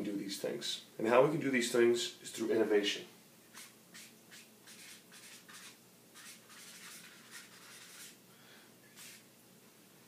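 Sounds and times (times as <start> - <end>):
marker scratching on whiteboard: 3.5 - 8.2, 9.0 - 9.2.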